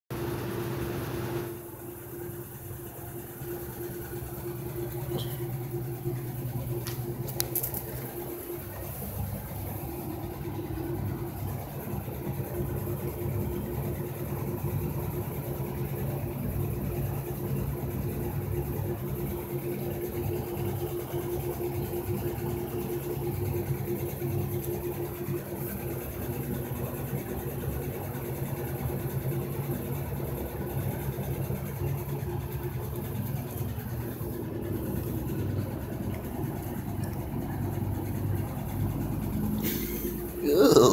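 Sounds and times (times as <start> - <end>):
machine hum: 0.1 - 15.1.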